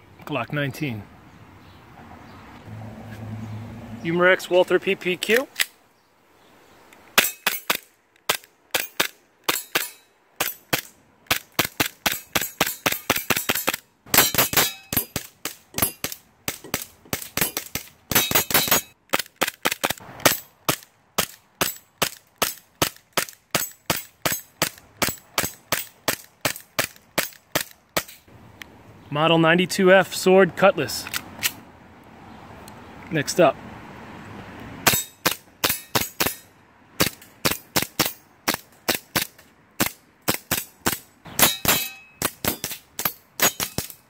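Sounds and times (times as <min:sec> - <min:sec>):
pellets clanging off steel targets: 0:12.0 - 0:19.0, 0:34.9 - 0:38.2, 0:40.3 - 0:44.0.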